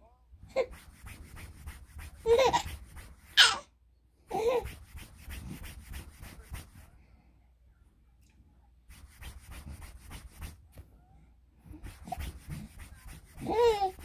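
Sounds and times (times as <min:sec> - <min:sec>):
rubbing and handling noise: 0:00.5 - 0:03.6, 0:04.3 - 0:07.1, 0:08.9 - 0:11.0, 0:11.6 - 0:14.0
baby babbling and squealing: 0:03.4 - 0:03.6.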